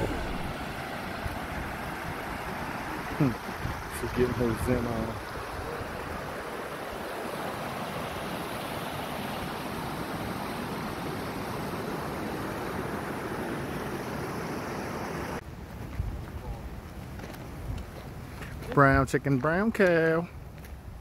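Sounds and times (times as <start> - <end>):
stream water flowing over rock: 0.0 - 15.4.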